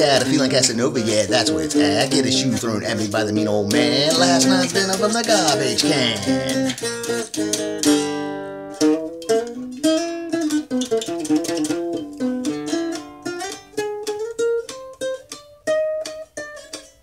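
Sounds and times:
guitar picked melody: 0:00.0 - 0:17.0.

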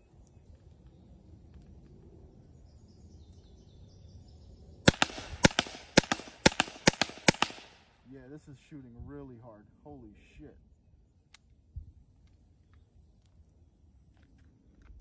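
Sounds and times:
compressed-gas launcher sharp shots: 0:04.9 - 0:07.8.

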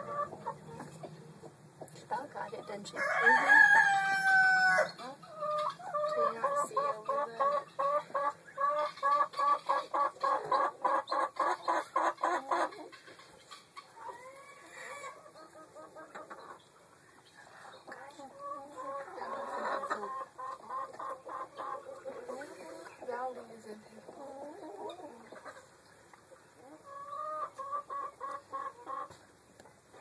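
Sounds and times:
chickens clucking: 0:00.0 - 0:30.0.

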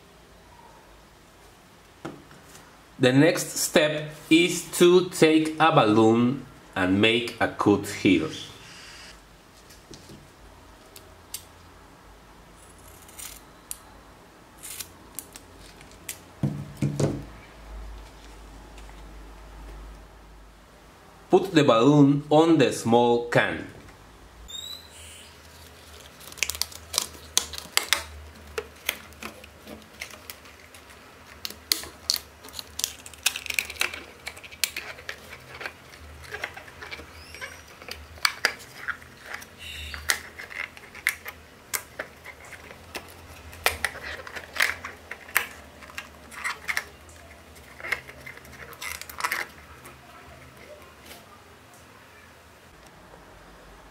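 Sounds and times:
clicks and crinkles of aluminium and rubber: 0:25.4 - 0:51.2.

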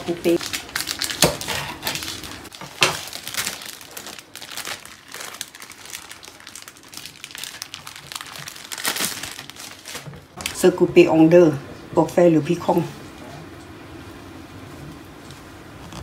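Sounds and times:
plastic wrapper crinkling: 0:00.1 - 0:10.6.

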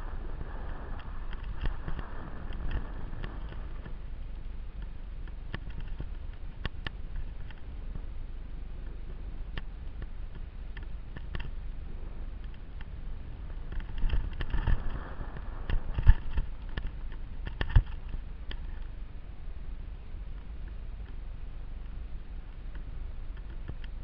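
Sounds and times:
camera handling rumble: 0:00.0 - 0:08.1, 0:08.8 - 0:19.0.

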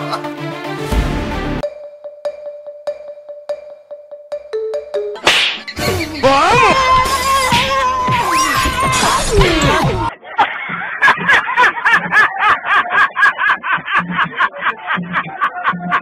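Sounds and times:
comedy sliding and falling tones: 0:04.5 - 0:10.1.

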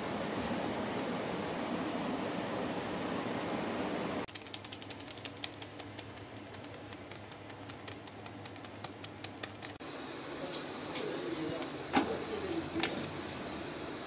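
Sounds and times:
dried herbs crackling ticks: 0:04.3 - 0:09.8.

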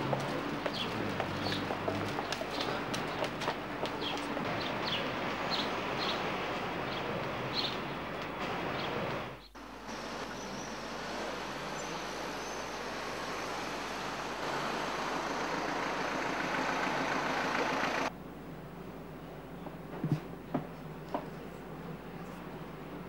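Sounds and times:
cars driving past: 0:00.0 - 0:18.1.

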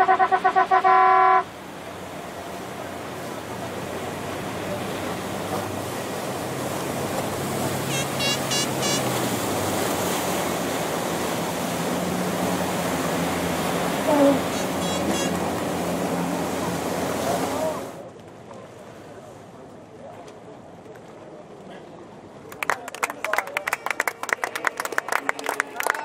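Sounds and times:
horn toots: 0:00.0 - 0:01.5, 0:07.8 - 0:09.4, 0:14.0 - 0:15.6
boat motors: 0:00.0 - 0:26.0
rushing water: 0:00.0 - 0:26.0
short high chirps: 0:07.9 - 0:09.0.

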